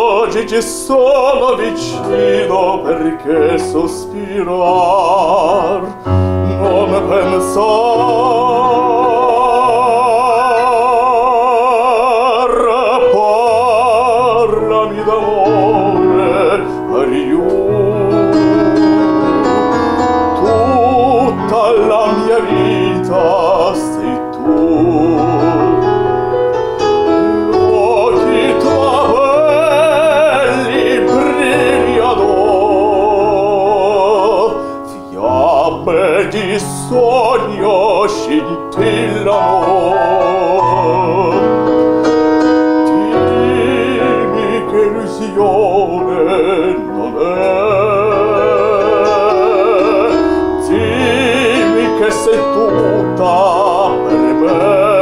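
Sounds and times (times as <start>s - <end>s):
man singing operatic style: 0.0s - 55.0s
piano accompaniment: 0.0s - 55.0s.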